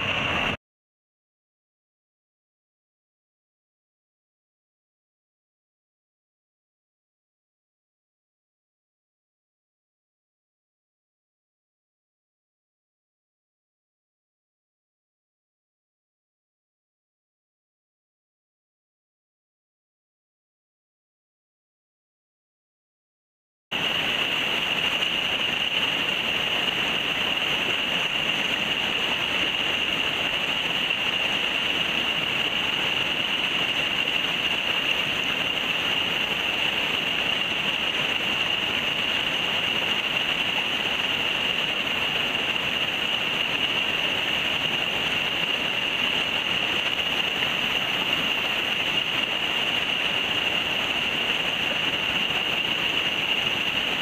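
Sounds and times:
river water rushing: 0.0 - 0.6, 23.8 - 54.0.

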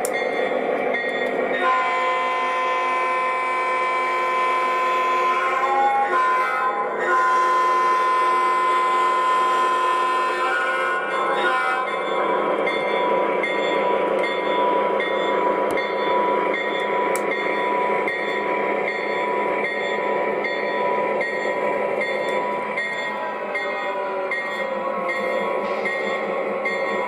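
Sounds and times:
model train diesel engine sound: 0.0 - 27.0
wheels rumbling on rails: 10.5 - 27.0.

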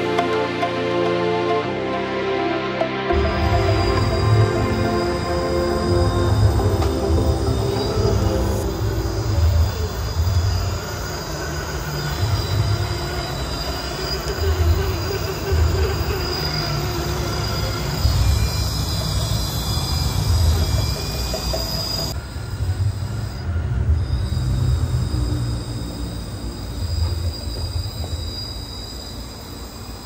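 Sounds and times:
toy truck motors whining: 9.2 - 22.2.

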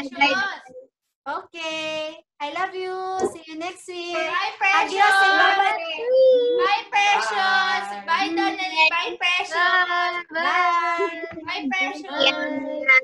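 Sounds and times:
child singing in a high voice: 4.1 - 13.0.

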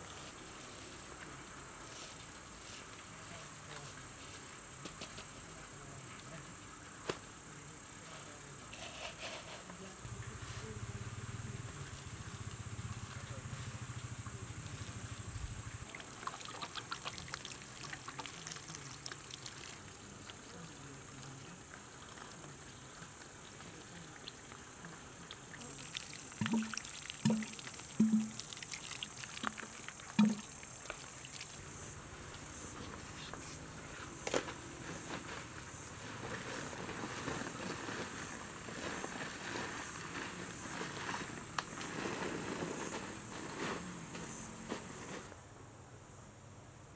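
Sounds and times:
steady high hiss: 0.0 - 46.9
flying insect buzzing: 25.4 - 32.8.

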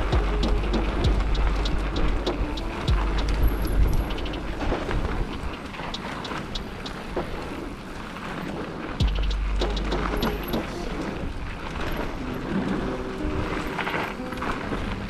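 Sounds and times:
bike clicking and rattling: 0.0 - 15.0
tyres on loose ground: 0.0 - 15.0
wind rumble on microphone: 0.0 - 15.0.

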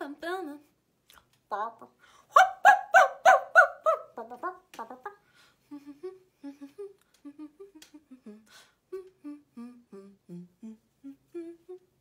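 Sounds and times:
quick breaths: 5.2 - 5.7, 8.4 - 8.9
woman humming a tune: 5.7 - 12.0.

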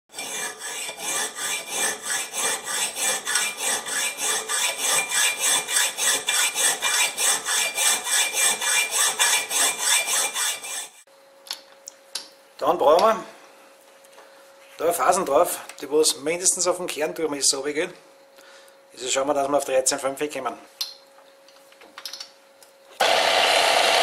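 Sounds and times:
hand tool rasping: 0.1 - 11.0.

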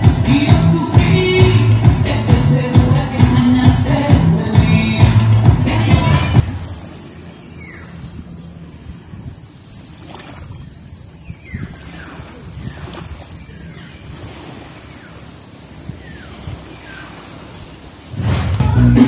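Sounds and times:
falling bird chirps: 6.4 - 18.5
high-pitched insect drone: 6.4 - 19.0.

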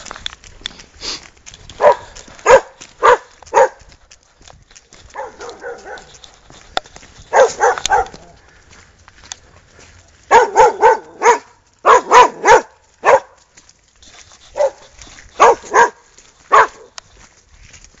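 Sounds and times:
dog barking: 1.8 - 3.9, 5.1 - 6.2, 7.3 - 8.4, 10.3 - 13.4, 14.5 - 17.0.

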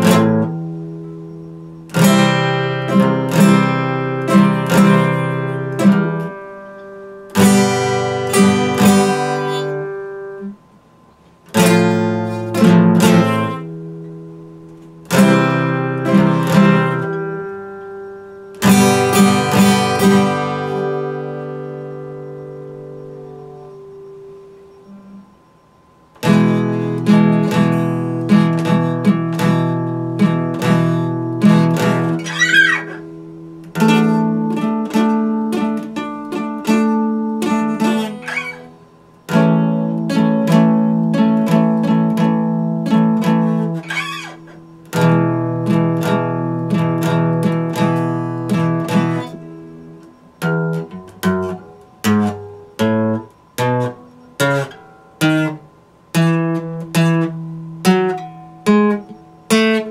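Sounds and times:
fingerstyle acoustic guitar: 0.0 - 25.5, 26.1 - 59.9
guitar string squeaks: 7.8 - 9.8, 27.6 - 34.5, 36.5 - 39.1, 43.0 - 45.4, 47.7 - 55.6.

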